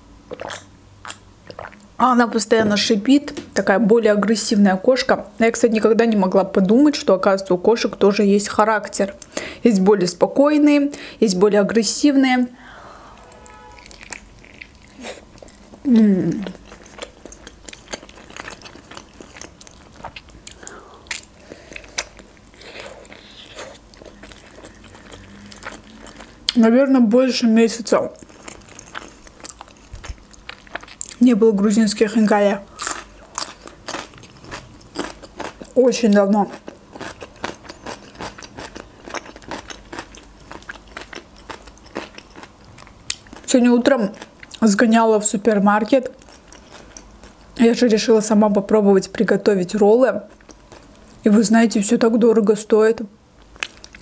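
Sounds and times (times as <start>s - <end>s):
person chewing wetly: 0.3s - 1.9s, 13.4s - 26.6s, 28.1s - 31.2s, 32.7s - 35.8s, 36.4s - 43.5s, 46.2s - 47.6s, 50.3s - 51.2s, 53.4s - 54.0s
falling pitched hum: 12.5s - 14.4s.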